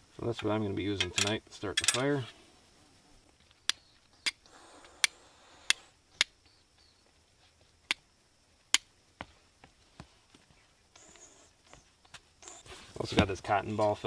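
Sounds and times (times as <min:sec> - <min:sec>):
flint and steel striking clicks: 0:03.4 - 0:06.6, 0:07.8 - 0:08.1, 0:08.7 - 0:08.9.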